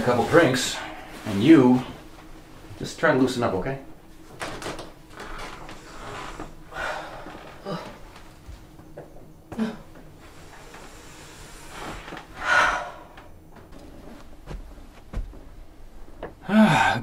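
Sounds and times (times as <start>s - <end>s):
woman sighing breathily: 6.7s - 8.0s.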